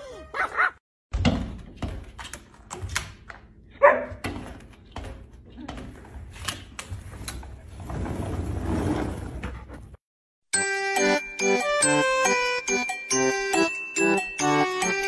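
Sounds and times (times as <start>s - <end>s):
tinkling music jingle: 10.5s - 15.0s.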